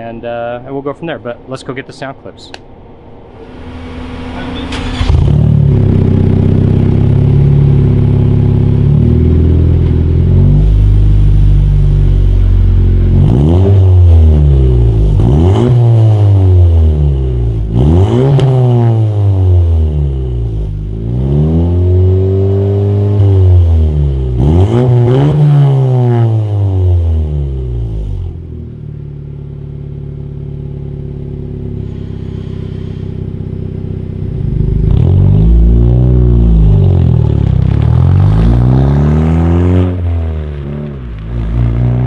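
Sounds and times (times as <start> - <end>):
car engine idling: 2.7 - 13.3, 27.0 - 42.0
car engine revving: 3.2 - 42.0.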